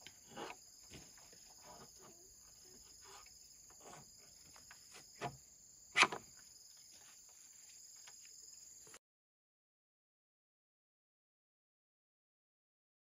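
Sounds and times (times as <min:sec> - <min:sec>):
insects chirring: 0:00.0 - 0:09.0.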